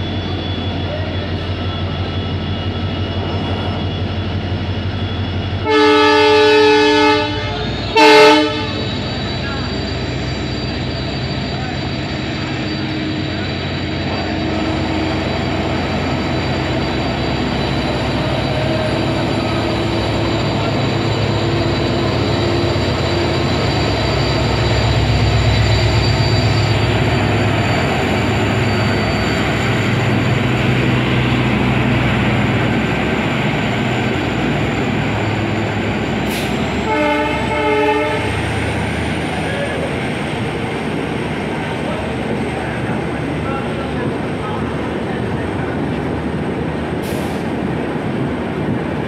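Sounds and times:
diesel locomotive engine at full power: 0.0s - 49.0s
train coaches rolling by: 0.0s - 49.0s
train horn: 5.6s - 8.9s, 36.8s - 38.4s.

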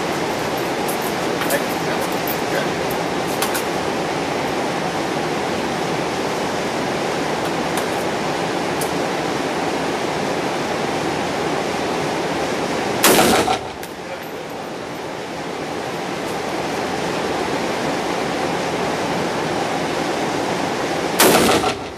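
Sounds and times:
steady rushing noise: 0.0s - 21.9s
gunshot: 13.0s - 13.8s, 21.2s - 21.9s.

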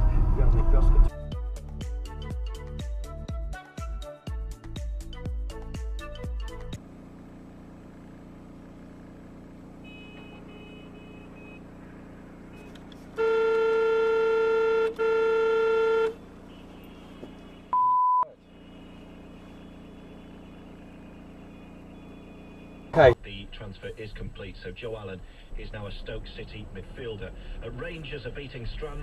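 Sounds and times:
low car cabin hum: 9.4s - 29.0s
car horn blasts: 9.7s - 11.8s, 12.5s - 23.2s
short one-pitch bleep: 9.9s - 11.6s, 17.7s - 18.4s.

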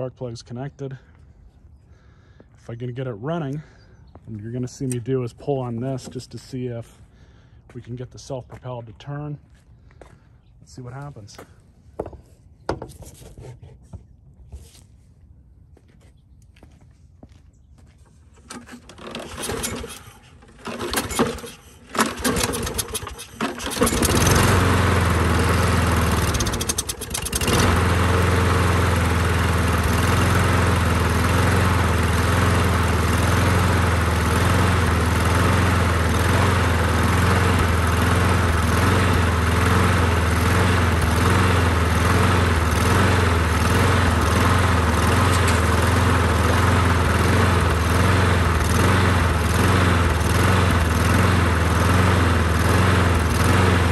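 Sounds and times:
lawn mower engine running: 18.2s - 53.9s
lawn mower pull-start cranking: 18.3s - 53.9s.

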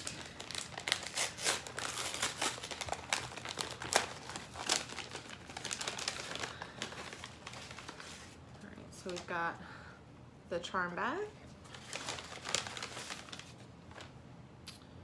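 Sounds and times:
paper pouch crinkling: 0.0s - 8.4s, 11.6s - 14.1s.

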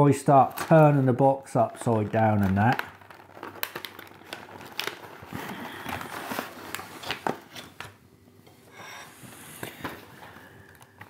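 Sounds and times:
plastic tray crinkling in cardboard box: 0.1s - 8.0s.

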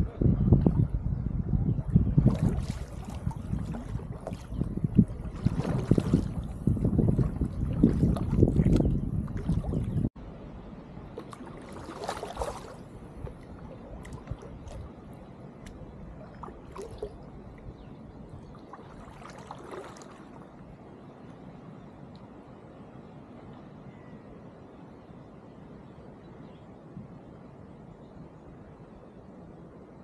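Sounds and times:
wind buffeting microphone: 0.0s - 20.8s
paddle splashing in water: 2.2s - 10.0s, 11.1s - 17.3s, 18.4s - 20.4s.

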